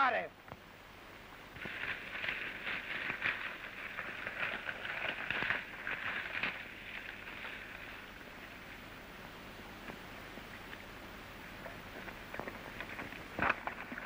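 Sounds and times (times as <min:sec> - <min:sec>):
horse hooves galloping on dirt: 0:01.6 - 0:08.9.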